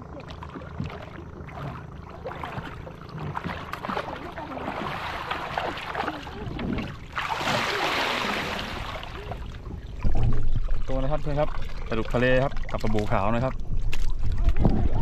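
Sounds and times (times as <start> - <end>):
water rushing and draining: 0.0 - 15.0
water splashing and sloshing: 0.0 - 15.0.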